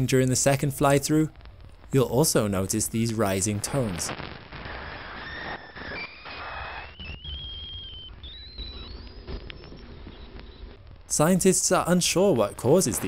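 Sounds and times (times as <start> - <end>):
steady hiss: 0.0 - 6.8, 8.1 - 13.0
rising whistling tones: 4.1 - 11.1.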